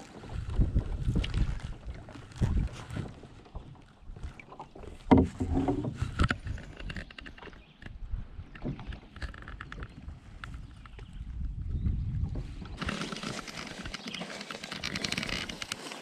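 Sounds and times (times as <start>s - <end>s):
paddle splashing and dripping: 0.0s - 6.3s.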